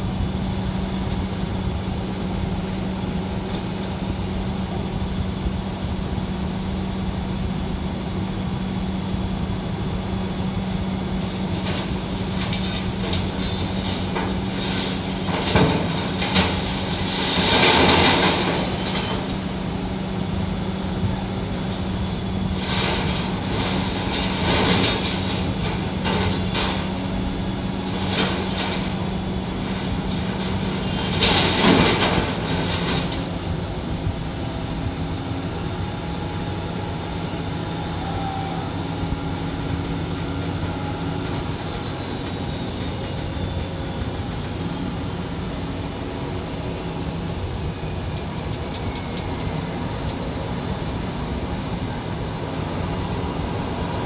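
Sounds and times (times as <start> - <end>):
diesel engine running: 0.0 - 54.0
scrap metal clattering and scraping: 11.6 - 19.4, 22.5 - 33.3.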